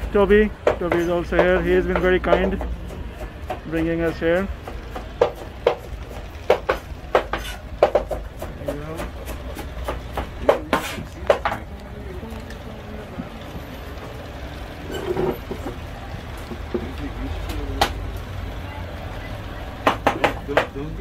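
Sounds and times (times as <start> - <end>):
knife chopping on cutting board: 0.6 - 11.6
faint voices: 10.0 - 21.0.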